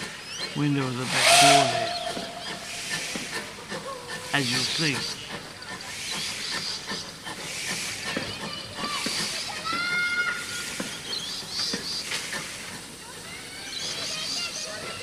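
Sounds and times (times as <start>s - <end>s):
steam hissing: 0.0s - 15.0s.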